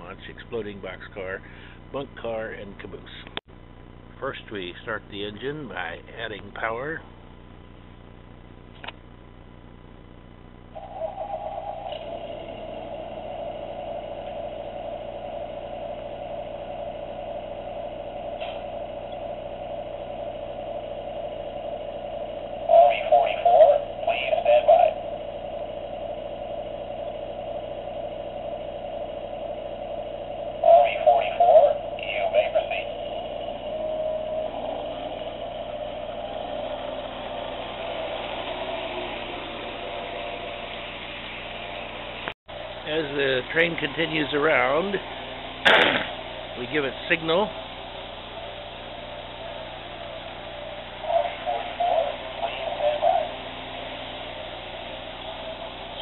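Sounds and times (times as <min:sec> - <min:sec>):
electronic diesel engine sound: 0:00.0 - 0:56.0
toy train running on track: 0:30.6 - 0:41.0.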